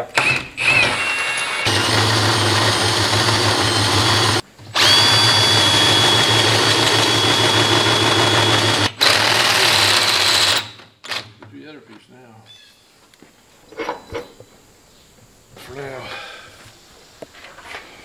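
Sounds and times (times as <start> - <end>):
power drill boring into steel: 0.1 - 10.8.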